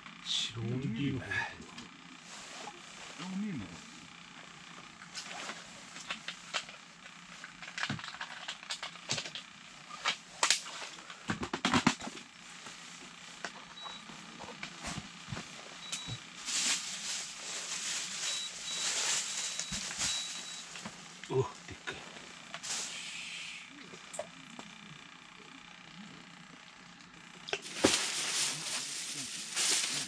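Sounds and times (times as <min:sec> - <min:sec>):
faint high beeps: 0:15.8 - 0:16.2, 0:18.3 - 0:20.7
hiss: 0:22.6 - 0:23.7, 0:27.7 - 0:30.0.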